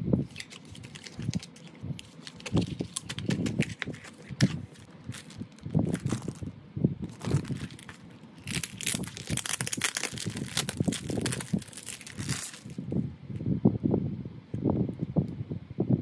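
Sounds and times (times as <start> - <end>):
plastic bag crinkling: 0.2 - 12.8.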